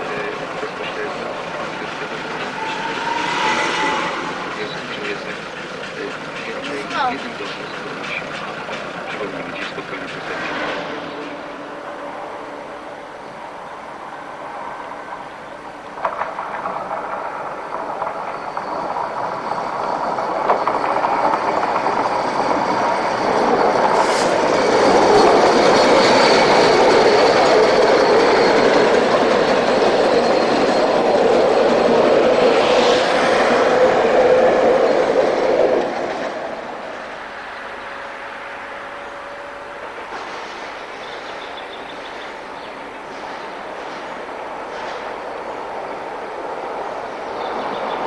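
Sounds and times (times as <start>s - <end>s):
steam train passing: 0.0s - 48.0s.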